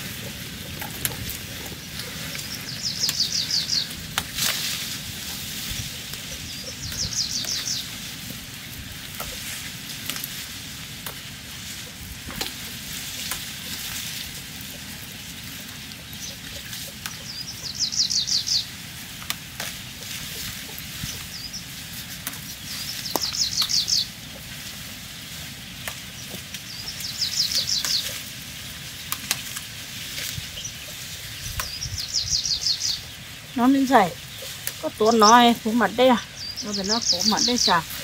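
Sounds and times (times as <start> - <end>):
songbird trilling: 0.0 - 4.0, 5.8 - 8.0, 16.0 - 18.7, 22.6 - 24.5, 26.2 - 28.2, 30.3 - 38.0
low outdoor rumble: 0.0 - 38.0.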